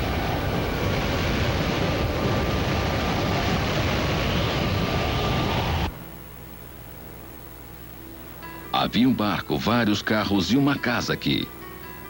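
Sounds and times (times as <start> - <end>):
wind rushing across microphone: 0.0 - 5.9.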